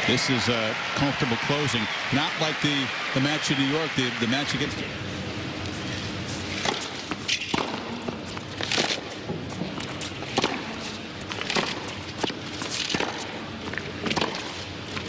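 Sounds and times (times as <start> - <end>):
tennis racquet striking ball: 6.5 - 13.4, 14.0 - 14.6.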